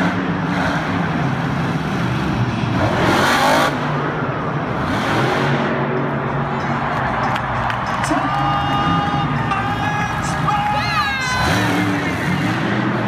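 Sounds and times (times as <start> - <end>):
truck engine revving: 0.0 - 13.0.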